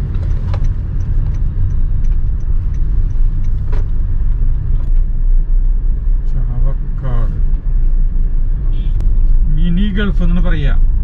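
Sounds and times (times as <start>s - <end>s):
car driving on road: 0.0s - 11.0s
faint regular ticking: 0.2s - 5.0s.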